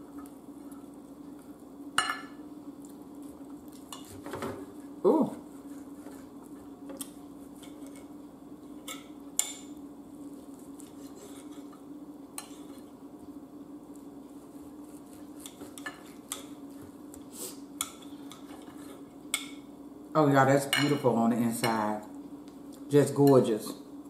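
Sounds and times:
steady low hum: 0.0 - 24.0
knife scraping on a plate: 10.8 - 11.8, 14.8 - 16.6, 17.3 - 19.1.

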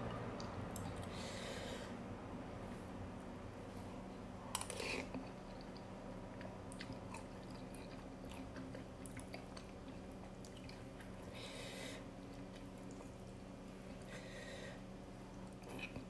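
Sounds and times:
wet chewing: 4.6 - 11.4.

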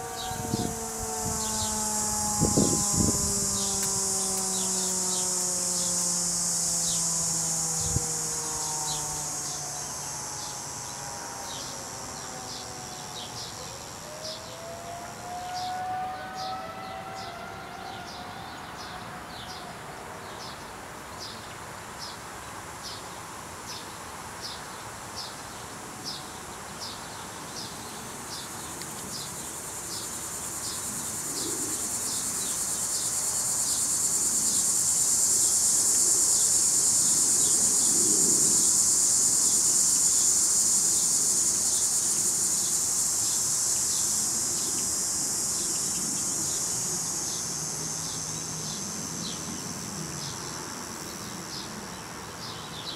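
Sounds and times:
distant warning siren: 0.0 - 20.5, 29.2 - 49.2
cicada buzzing drone: 0.0 - 52.9
insect high chirp: 0.0 - 52.9.

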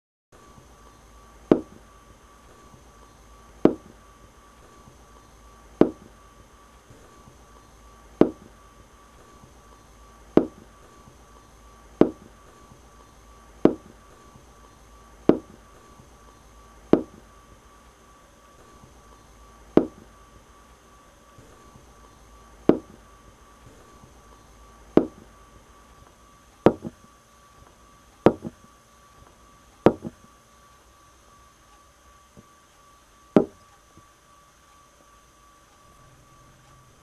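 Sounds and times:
faint steady hum: 0.3 - 37.0
thin high whine: 0.4 - 37.0
sharp single knocks: 3.7 - 3.9, 5.8 - 6.1, 10.4 - 10.6, 15.3 - 15.6, 17.0 - 17.2, 19.8 - 20.0, 22.7 - 23.0, 25.0 - 25.2, 33.4 - 33.6.

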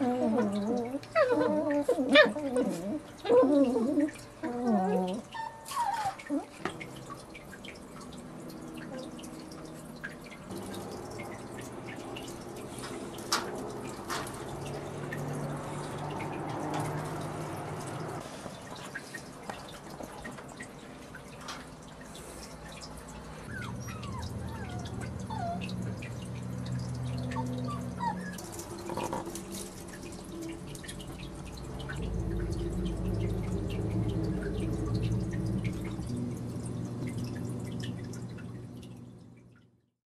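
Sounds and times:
puppies squeaking: 23.5 - 25.7, 27.3 - 29.3
steady low hum: 29.6 - 39.6.

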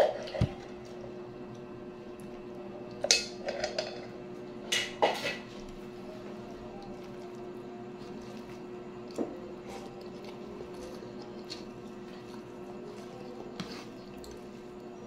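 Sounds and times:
steady hum: 0.0 - 15.0
moist chewing: 6.4 - 14.9.

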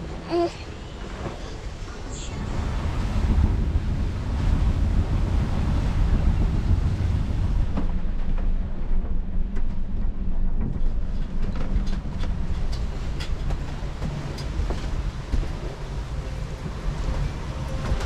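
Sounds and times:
rushing water: 0.0 - 8.0, 11.9 - 18.0
steady low hum: 0.0 - 18.0
water rushing along hull: 0.0 - 18.0
wind buffeting microphone: 0.9 - 18.0.

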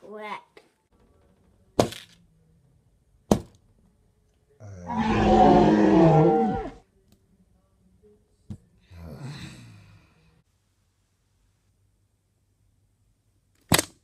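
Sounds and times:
loud wavering roar: 4.7 - 6.8.

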